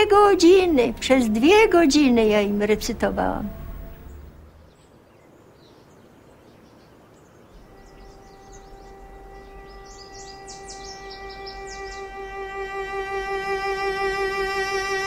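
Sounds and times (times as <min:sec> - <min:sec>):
held violin note: 0:00.0 - 0:04.6, 0:07.6 - 0:15.0
birds chirping: 0:00.0 - 0:15.0.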